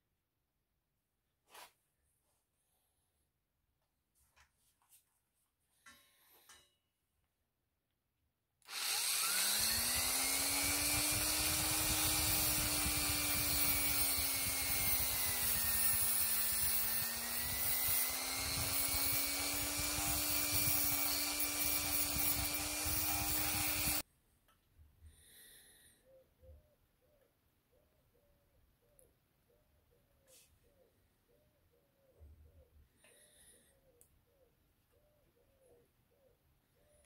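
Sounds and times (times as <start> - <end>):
rotary tool cutting steel cable: 8.6 - 24.0.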